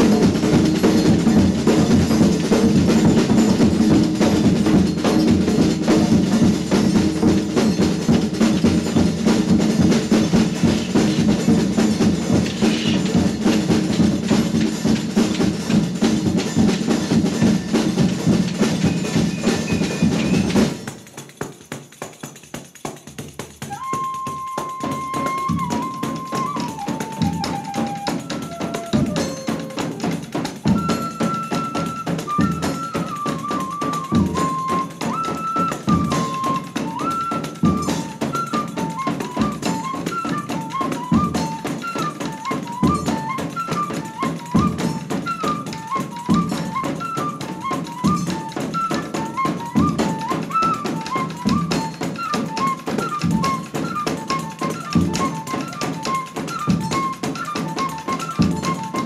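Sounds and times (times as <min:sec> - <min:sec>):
fife melody: 0:00.0 - 0:20.9, 0:23.6 - 0:59.0
hand cymbal: 0:00.0 - 0:59.0
snare drums: 0:00.0 - 0:59.0.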